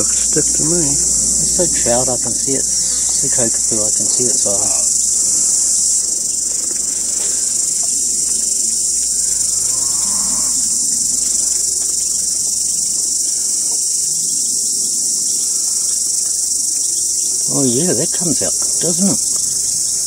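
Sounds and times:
insects chorus: 0:00.0 - 0:20.0.

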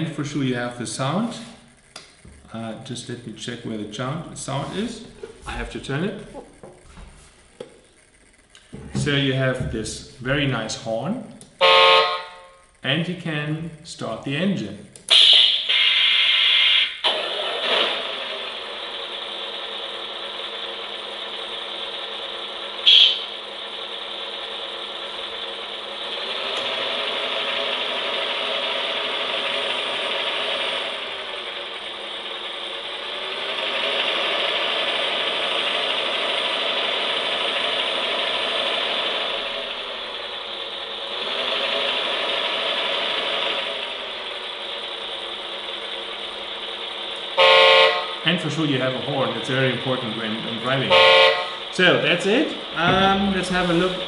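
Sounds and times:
simulated diesel engine revving: 0:17.0 - 0:54.0
brief sharp sound: 0:22.9 - 0:23.3.

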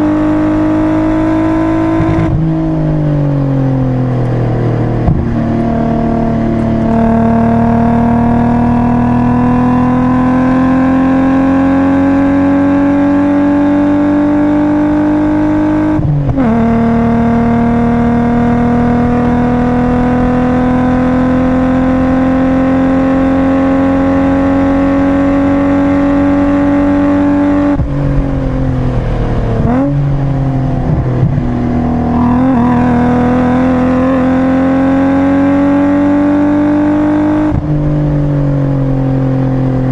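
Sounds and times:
car engine accelerating: 0:00.0 - 0:39.9
engine rev blips: 0:05.0 - 0:27.9, 0:30.8 - 0:37.8.

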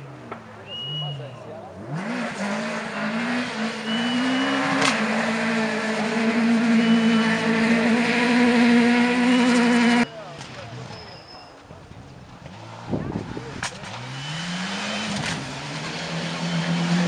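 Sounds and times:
rally car engine at high revs: 0:01.7 - 0:10.1, 0:12.4 - 0:17.0.

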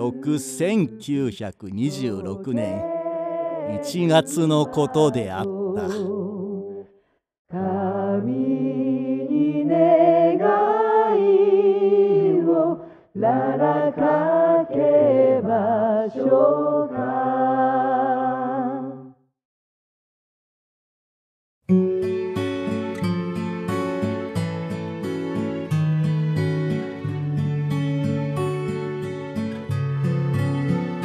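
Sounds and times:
person singing slow chant: 0:00.0 - 0:06.9.

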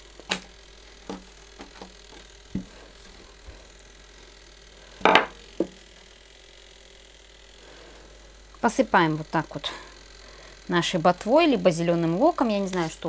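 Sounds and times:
rolling pin knocking on table: 0:05.0 - 0:05.8.

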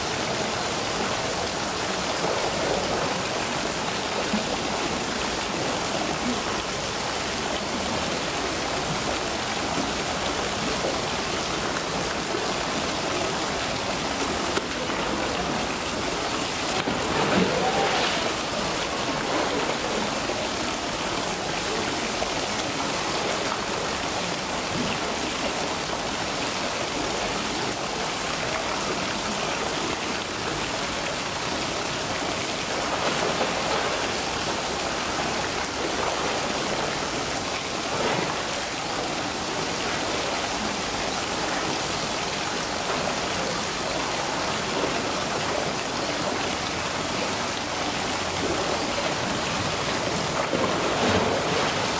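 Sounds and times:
running water: 0:00.0 - 0:51.9.

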